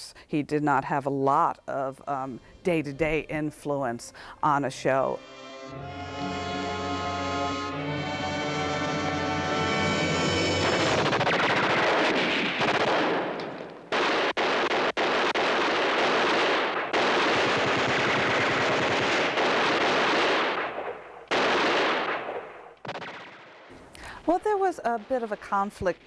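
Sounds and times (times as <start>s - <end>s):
rapid gunfire: 10.6s - 23.7s.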